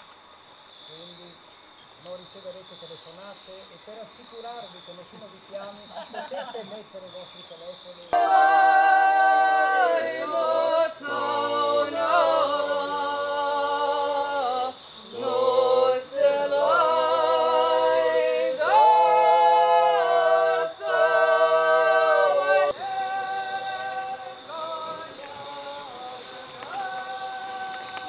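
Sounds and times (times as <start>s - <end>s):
unaccompanied choir singing: 8.1s - 28.0s.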